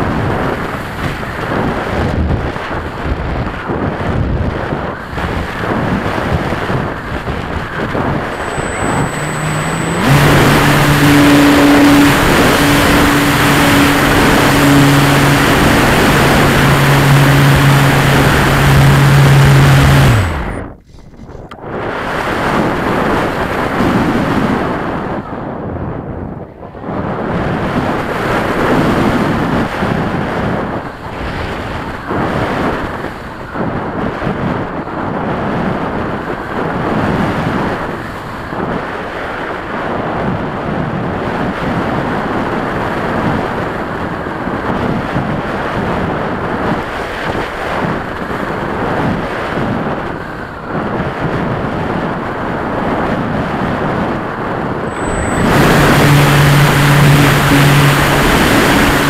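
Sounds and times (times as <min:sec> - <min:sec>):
wind rushing over microphone: 0:00.0 - 0:59.0
model airplane motor humming: 0:04.6 - 0:23.8, 0:54.8 - 0:59.0.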